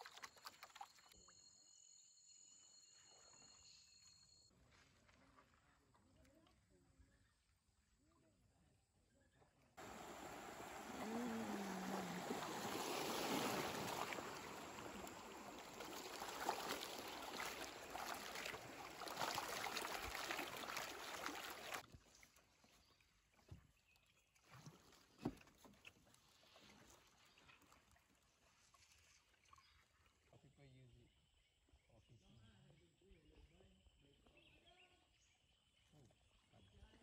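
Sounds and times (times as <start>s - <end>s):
river water rushing: 9.8s - 21.8s.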